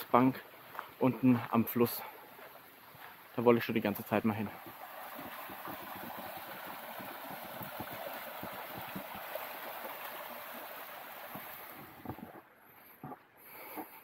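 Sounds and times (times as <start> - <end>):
stream babbling over stones: 3.4 - 12.5.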